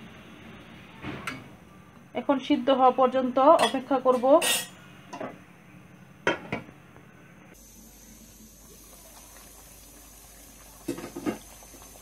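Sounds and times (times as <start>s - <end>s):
water bubbling at the boil: 7.6s - 12.0s.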